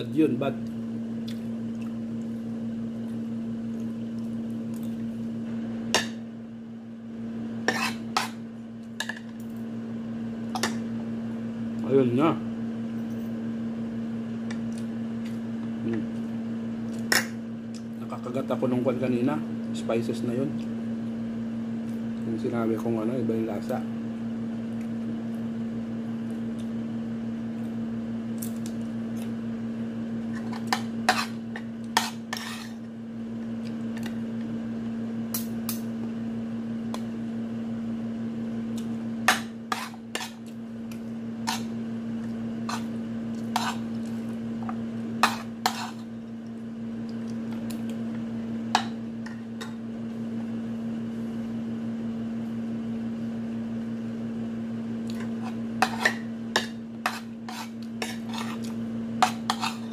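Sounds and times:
steady low hum: 0:00.0 - 0:59.9
fork scraping a plate: 0:07.6 - 0:08.4, 0:30.3 - 0:32.9, 0:39.3 - 0:40.5, 0:41.4 - 0:41.8, 0:42.6 - 0:44.1, 0:45.2 - 0:46.1, 0:55.1 - 0:59.9.

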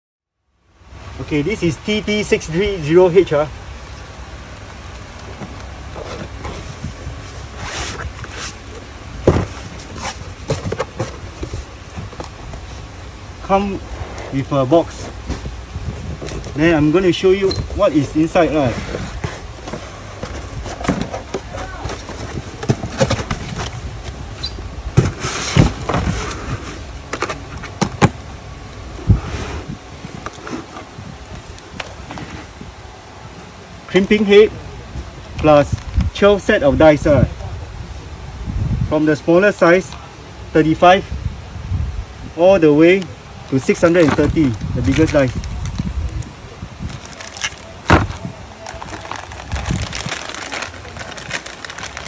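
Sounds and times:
low steady hum: 0:00.3 - 0:52.0
low steady rumble: 0:00.4 - 0:52.0
cardboard flaps scraping and rustling: 0:04.7 - 0:28.3, 0:29.0 - 0:32.7, 0:43.6 - 0:52.0
plastic case knocks and thumps: 0:09.2 - 0:09.7, 0:47.9 - 0:48.2.

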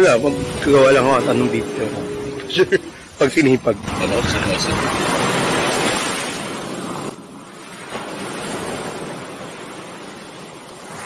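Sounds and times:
sea surf: 0:00.0 - 0:11.0
wind: 0:00.0 - 0:11.0.

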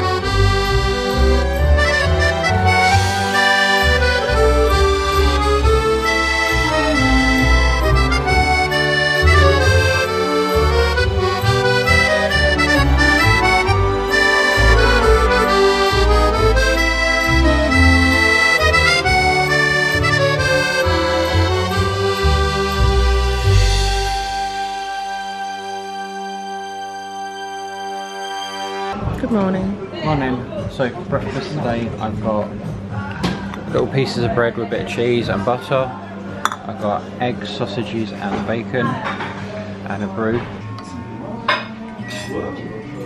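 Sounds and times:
accordion melody: 0:00.0 - 0:29.5
bass line: 0:00.0 - 0:29.8.

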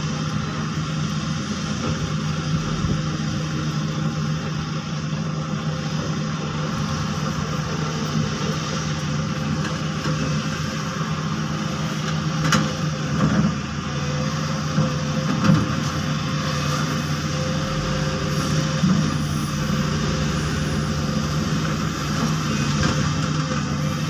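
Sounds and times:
heavy diesel engines running: 0:00.0 - 0:24.0.

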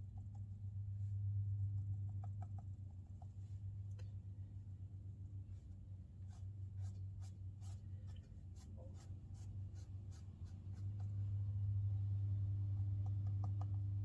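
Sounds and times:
brush dabbing on paper: 0:00.0 - 0:03.9, 0:05.4 - 0:11.4
low electrical hum: 0:00.0 - 0:14.0.

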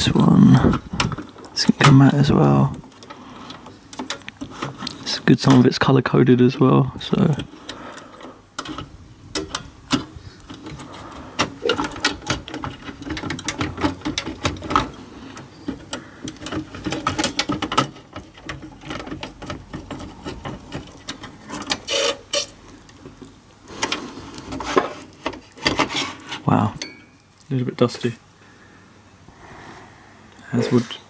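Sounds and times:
cable connectors clicking and knocking: 0:00.6 - 0:05.7, 0:07.4 - 0:25.9.

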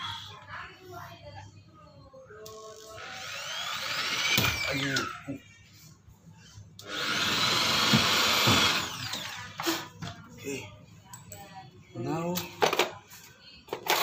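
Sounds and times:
power drill drilling plastic: 0:03.0 - 0:05.1, 0:06.8 - 0:09.8.

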